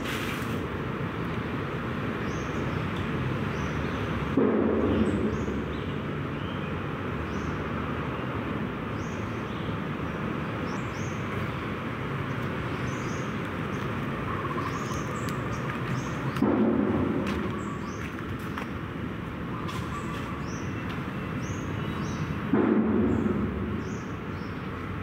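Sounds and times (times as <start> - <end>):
steady rushing noise: 9.8 - 25.0.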